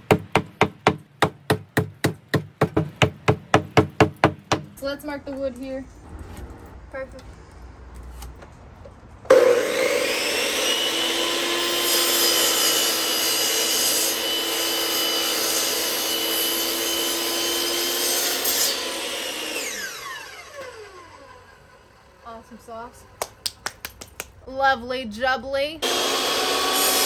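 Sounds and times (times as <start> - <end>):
miter saw cutting wood: 9.3 - 22.3, 25.8 - 27.0.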